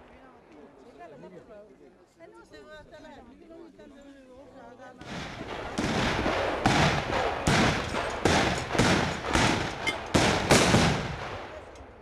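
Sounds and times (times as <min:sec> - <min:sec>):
guns firing with rolling echo: 0:05.0 - 0:12.0.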